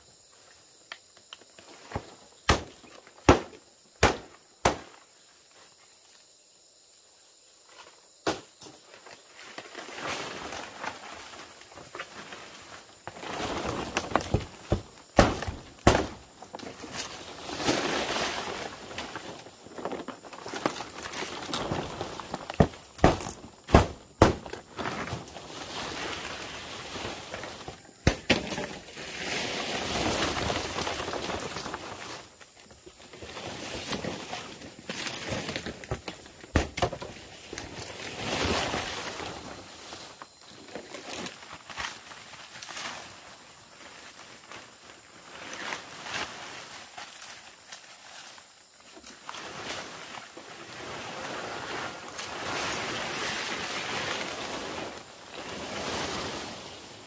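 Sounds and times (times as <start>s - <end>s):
machete chopping palm stalks: 2.4s - 5.0s, 14.0s - 16.2s, 22.5s - 25.0s, 28.0s - 28.9s, 36.5s - 37.1s
palm fronds rustling: 7.1s - 57.0s.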